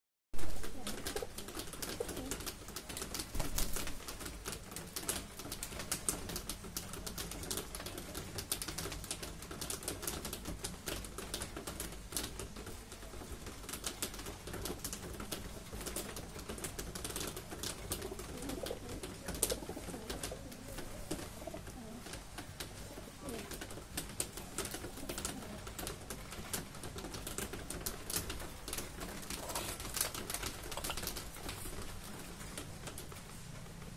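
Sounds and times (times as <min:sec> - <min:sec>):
beaks tapping on tiles: 0:00.6 - 0:33.7
pigeons cooing: 0:17.8 - 0:22.1, 0:29.2 - 0:31.8.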